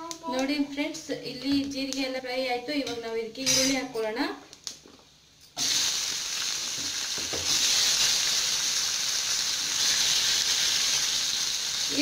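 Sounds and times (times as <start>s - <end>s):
onions sizzling in hot oil: 5.6s - 12.0s.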